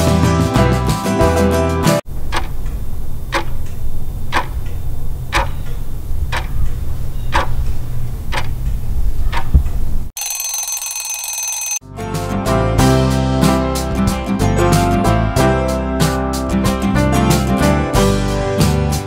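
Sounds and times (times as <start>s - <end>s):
clock ticking: 2.2s - 9.8s
high steady ringing: 10.2s - 11.8s.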